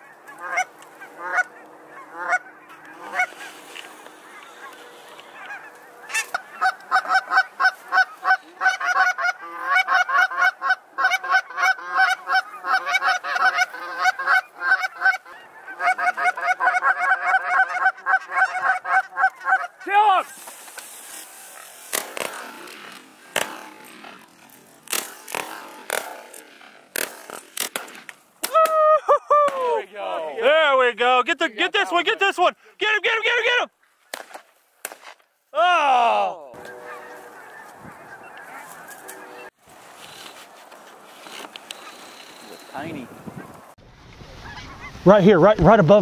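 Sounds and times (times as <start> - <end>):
geese honking: 0.0 - 24.5, 36.6 - 40.2, 41.7 - 46.0
low falling goose call: 0.3 - 3.6, 4.2 - 19.9, 35.6 - 39.5.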